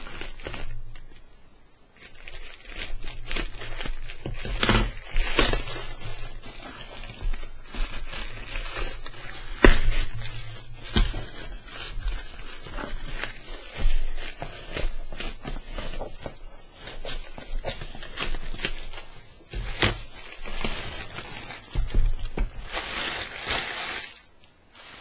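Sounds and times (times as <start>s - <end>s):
plastic bag crinkling and tearing: 0.0s - 1.3s, 1.9s - 25.0s
scissors cutting plastic: 2.6s - 22.4s.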